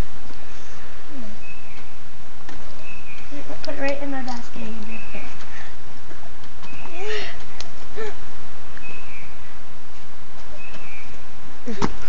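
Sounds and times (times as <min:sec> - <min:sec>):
outdoor hiss: 0:00.0 - 0:12.0
bird chirp: 0:01.3 - 0:02.0, 0:02.7 - 0:05.8, 0:06.6 - 0:07.3, 0:08.7 - 0:09.6, 0:10.4 - 0:11.3.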